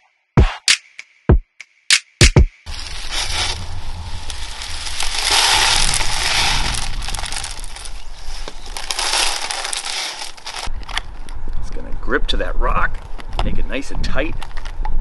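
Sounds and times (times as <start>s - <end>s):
gritty soil crunching and pouring: 2.6s - 11.9s.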